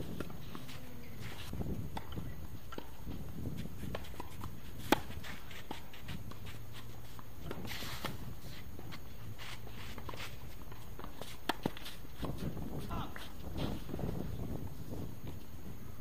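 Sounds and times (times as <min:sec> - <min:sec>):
footsteps on court: 0:00.0 - 0:15.5
racket hitting tennis ball: 0:03.6 - 0:06.9.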